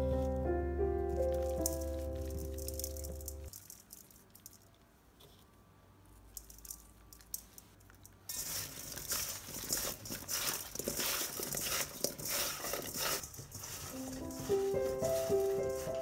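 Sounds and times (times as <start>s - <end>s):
soft music: 0.0s - 3.5s, 13.8s - 16.0s
potatoes tossed in a metal bowl: 1.1s - 4.8s, 6.2s - 16.0s
seasoning sprinkling ticks: 1.1s - 4.8s, 6.2s - 16.0s.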